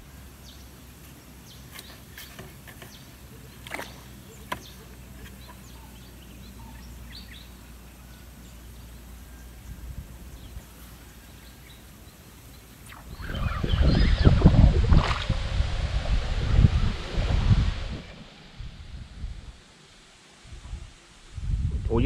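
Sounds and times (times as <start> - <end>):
faint bird chirps: 1.4 - 14.7
low hum: 12.7 - 21.6.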